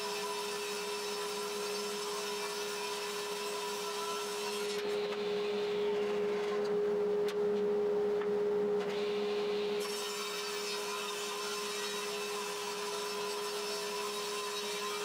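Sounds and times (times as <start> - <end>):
saw blade cutting wood: 9.8 - 15.0.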